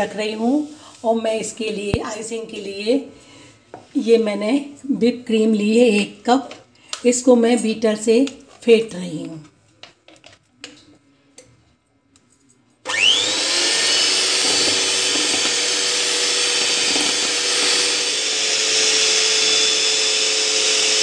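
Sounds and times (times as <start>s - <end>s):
electric hand mixer whirring: 12.9s - 21.0s.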